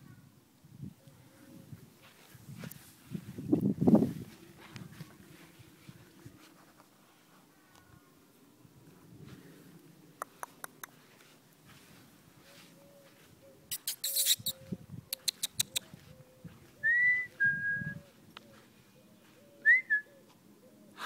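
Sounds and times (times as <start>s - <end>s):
whistled chirps: 13.8s - 14.6s, 16.8s - 18.0s, 19.6s - 20.1s.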